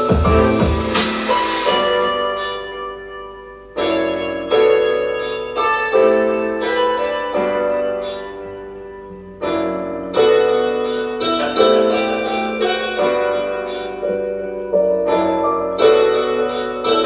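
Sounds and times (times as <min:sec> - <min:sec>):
piano chords: 0:00.0 - 0:17.0.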